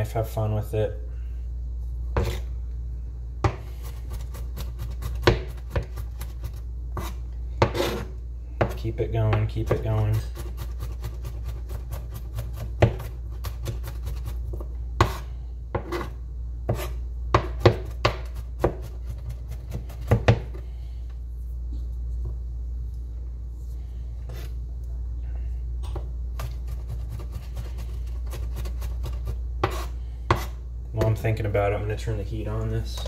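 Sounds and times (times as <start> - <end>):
steady low hum: 0.0 - 33.0
knife chopping on cutting board: 2.2 - 2.4, 3.4 - 15.2, 16.7 - 20.6, 26.4 - 31.2.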